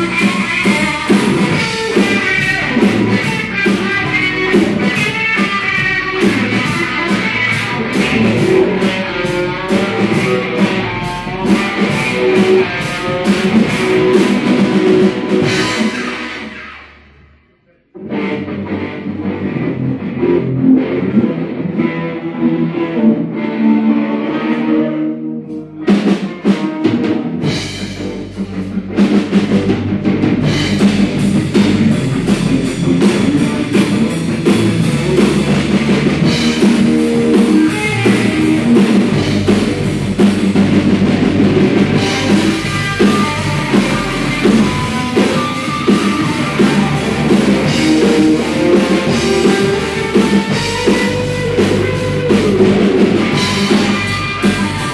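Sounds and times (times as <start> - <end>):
drum kit with cymbals: 0.0 - 17.0, 25.5 - 54.9
electric guitar: 0.0 - 54.9.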